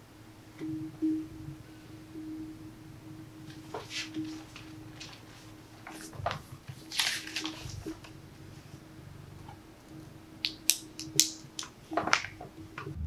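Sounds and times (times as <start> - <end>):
steady tone: 0.0 - 6.7, 11.7 - 13.0.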